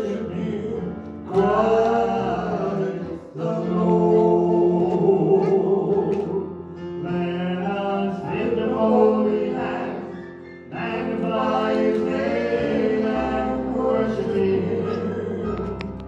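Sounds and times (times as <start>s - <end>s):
instrumental accompaniment: 0.0s - 16.0s
man singing into a microphone: 3.0s - 9.3s.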